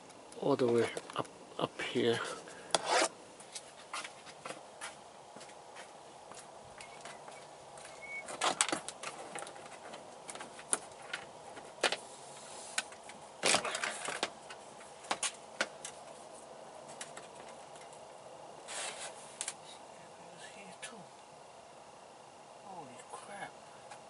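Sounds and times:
hands rustling cable: 2.2s - 19.6s.

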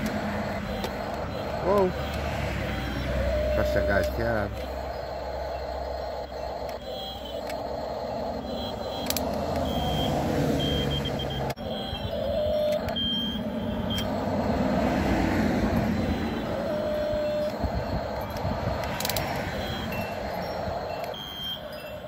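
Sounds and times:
cars passing: 0.0s - 22.0s
electric motors whining: 0.0s - 22.0s.

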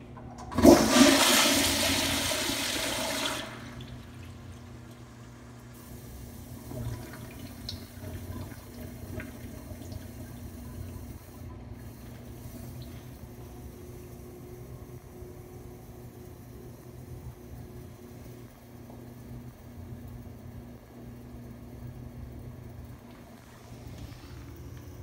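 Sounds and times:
toilet flushing whoosh: 0.2s - 10.7s.

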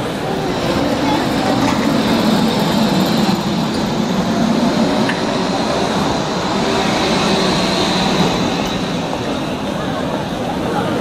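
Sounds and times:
tram wheels rumbling on rails: 0.0s - 11.0s.

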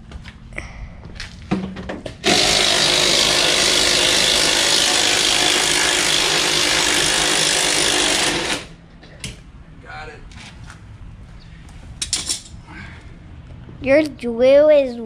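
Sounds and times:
impact driver hammering: 1.5s - 8.7s.

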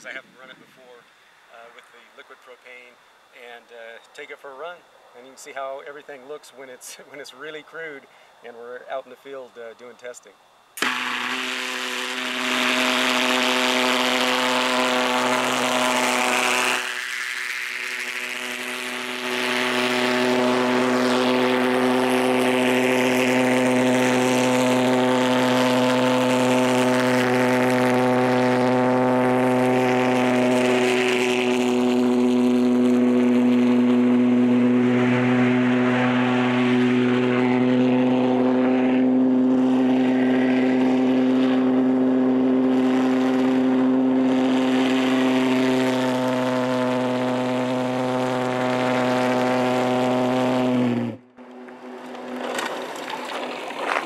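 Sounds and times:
pulsejet buzzing drone: 10.7s - 52.7s.

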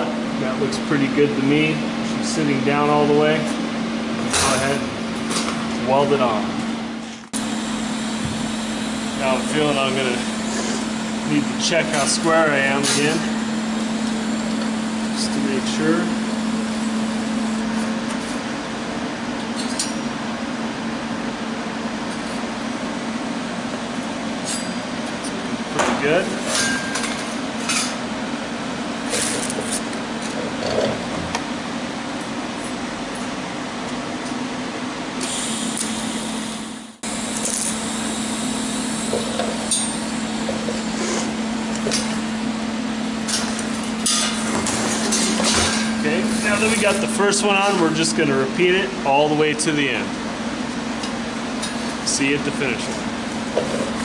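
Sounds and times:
machine hum: 0.0s - 54.0s
welding arc crackling and hissing: 35.2s - 42.0s.

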